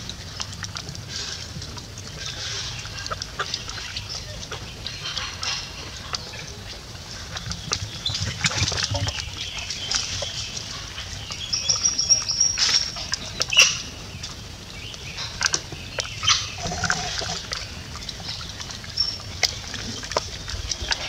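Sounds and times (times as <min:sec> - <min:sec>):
birds chirping and whistling: 0:07.9 - 0:14.2, 0:14.8 - 0:17.0.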